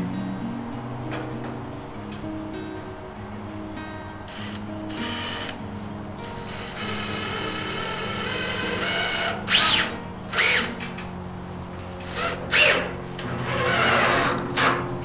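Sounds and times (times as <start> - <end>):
background music: 0.0 - 15.0
power drill driving screws: 4.3 - 5.6, 6.3 - 10.7, 12.0 - 14.8.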